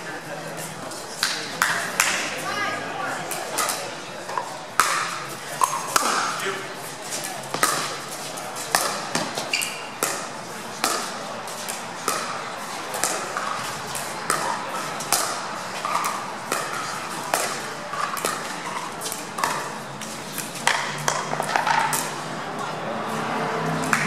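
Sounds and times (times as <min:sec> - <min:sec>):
paddles hitting plastic ball: 0:01.2 - 0:02.2, 0:03.3 - 0:06.4, 0:07.2 - 0:22.2.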